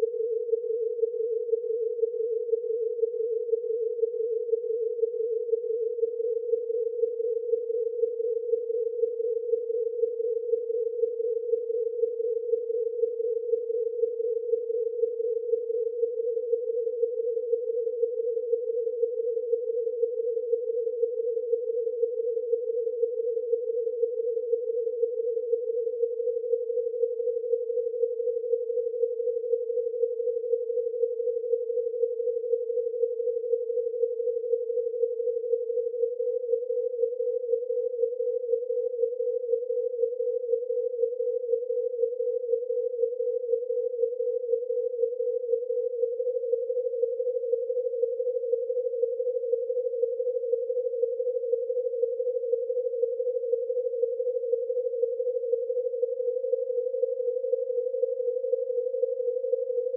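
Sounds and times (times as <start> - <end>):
pulsing buzzing sine tone chord: 0.0 - 59.9.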